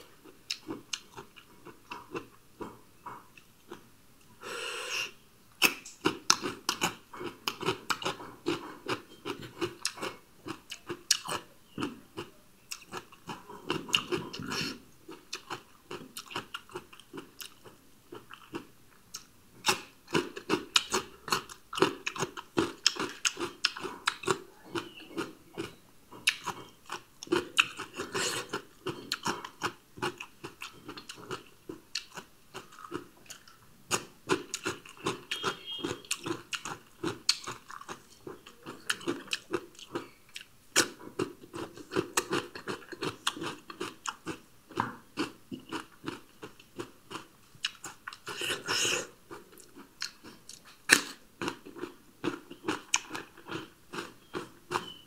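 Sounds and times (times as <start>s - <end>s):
chewing crunchy vegetables: 0.0s - 3.9s, 5.6s - 55.0s.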